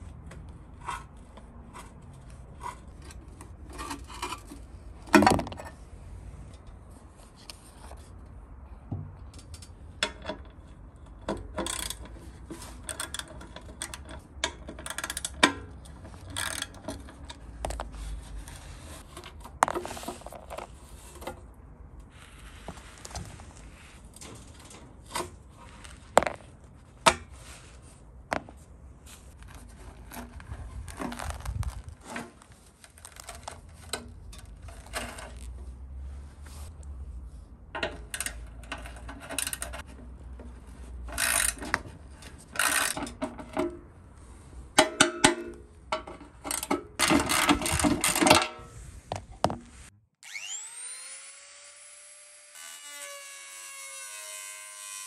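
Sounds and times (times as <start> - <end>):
hand tools scraping and clanking metal: 0.4 - 8.2, 9.4 - 36.7, 37.8 - 49.9
electric rotary tool whining: 50.2 - 53.0.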